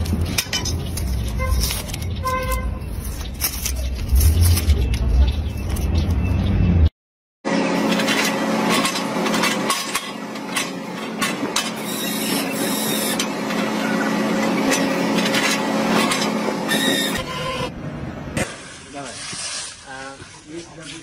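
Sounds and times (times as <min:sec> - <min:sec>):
excavator engine humming: 0:07.5 - 0:18.3.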